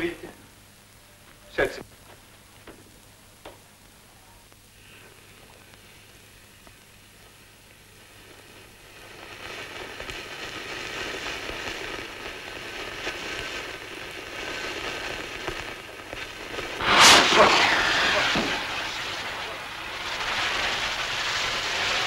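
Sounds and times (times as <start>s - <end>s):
firework fizzing hiss: 4.7s - 22.0s
firework loud burst: 12.8s - 22.0s.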